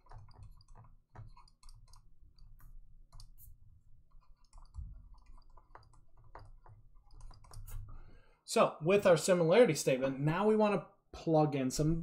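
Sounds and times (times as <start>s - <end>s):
pen clicking on whiteboard: 0.0s - 7.9s.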